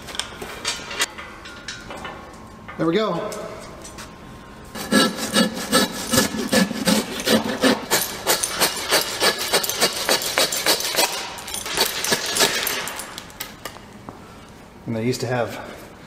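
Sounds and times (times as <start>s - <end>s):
hand saw cutting carcass: 4.8s - 12.7s.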